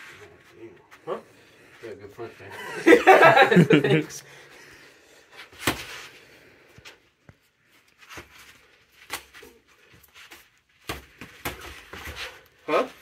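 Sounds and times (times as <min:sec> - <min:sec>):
feet shuffling on mats: 0:05.3 - 0:13.0.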